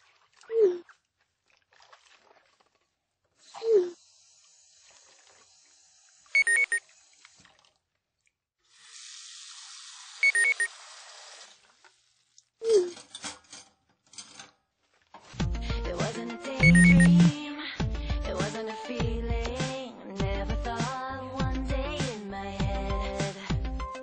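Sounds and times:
steady hiss of running tap: 3.4s - 7.4s, 8.7s - 11.9s
falling bloop tone: 16.6s - 17.3s
notification chime of high pips: 16.6s - 17.3s.

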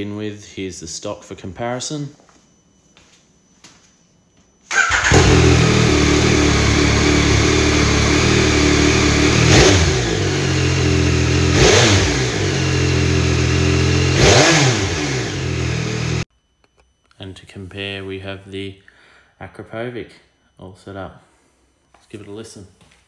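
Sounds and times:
motorcycle engine idling: 4.7s - 16.2s
engine throttle blips: 4.7s - 16.3s.

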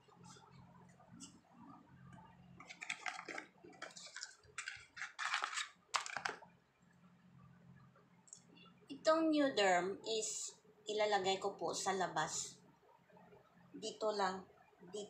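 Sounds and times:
packaging crinkling: 2.6s - 6.4s.

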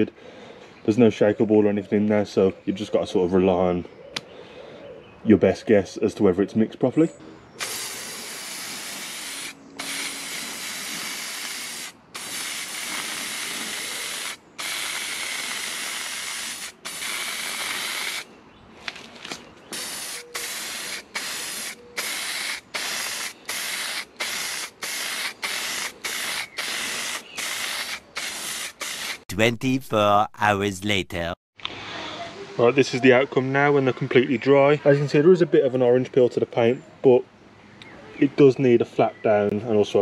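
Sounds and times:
aerosol can spraying: 7.6s - 18.2s, 19.7s - 29.2s.

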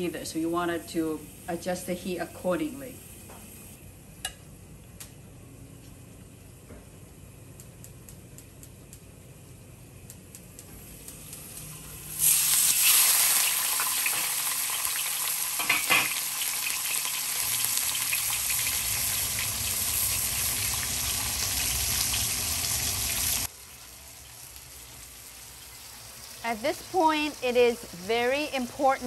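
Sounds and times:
fish frying in hot oil: 12.0s - 28.7s.

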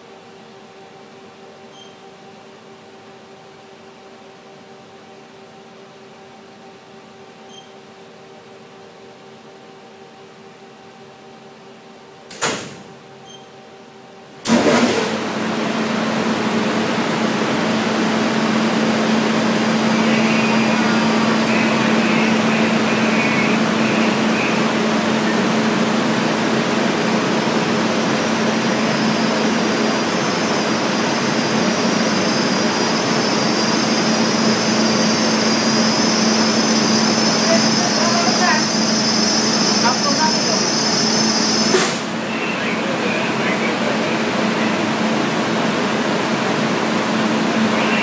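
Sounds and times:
loud electrical hum with rushing: 14.1s - 48.0s.

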